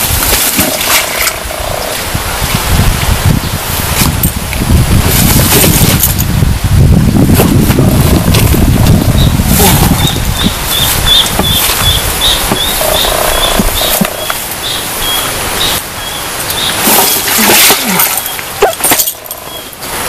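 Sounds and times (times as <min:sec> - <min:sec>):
animal chirping: 0:09.9 - 0:16.8.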